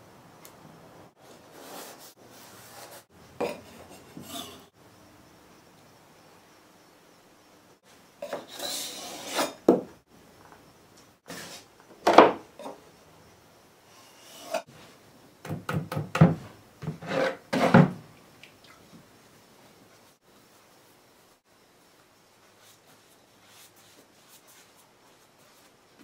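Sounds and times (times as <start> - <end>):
putty knife scraping along tape: 17.0 - 17.8.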